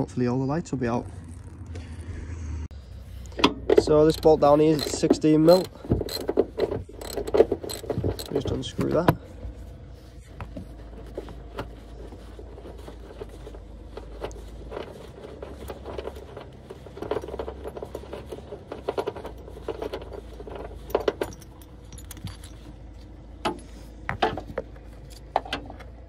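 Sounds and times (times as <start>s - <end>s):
metallic clinking: 3.3s - 8.7s, 17.0s - 23.8s
socket wrench clicking: 4.1s - 6.4s, 7.0s - 8.4s.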